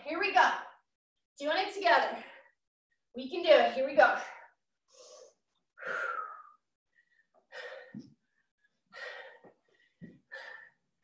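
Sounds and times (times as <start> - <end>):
person breathing hard: 4.9 - 11.0.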